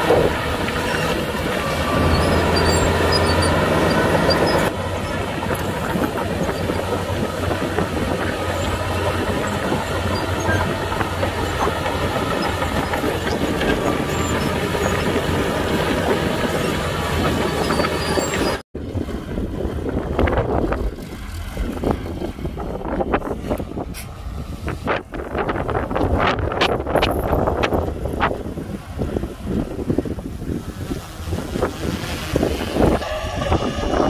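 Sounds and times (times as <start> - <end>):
bulldozer diesel engine running: 0.0 - 34.0
wind noise on microphone: 0.0 - 34.0
steel tracks clattering: 4.4 - 18.6.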